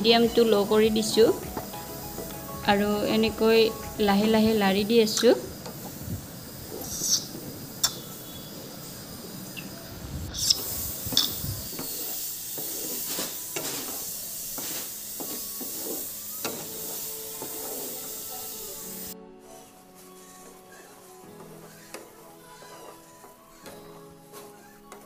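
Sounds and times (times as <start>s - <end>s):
spatula scraping a pan: 19.4s - 25.0s.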